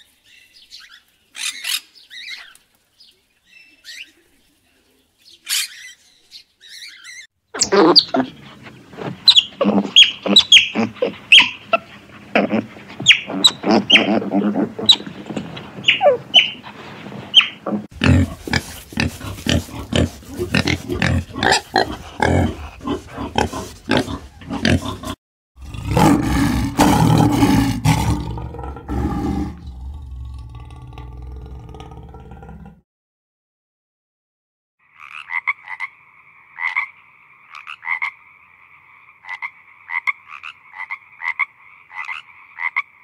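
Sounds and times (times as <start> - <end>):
otters chirping: 5.2 - 25.2
wild boar grunting: 7.7 - 16.6, 17.6 - 32.8
lion roaring: 17.6 - 32.8.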